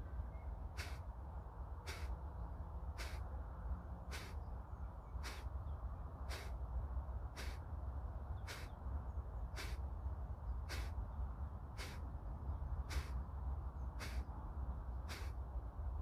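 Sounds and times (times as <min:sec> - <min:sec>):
forceful nasal exhalations: 0:00.8 - 0:01.0, 0:01.9 - 0:02.1, 0:03.0 - 0:03.2, 0:04.1 - 0:04.4, 0:05.2 - 0:05.5, 0:06.3 - 0:06.6, 0:07.4 - 0:07.6, 0:08.5 - 0:08.7, 0:09.6 - 0:09.8, 0:10.7 - 0:11.0, 0:11.8 - 0:12.0, 0:12.9 - 0:13.2, 0:14.0 - 0:14.2, 0:15.1 - 0:15.3.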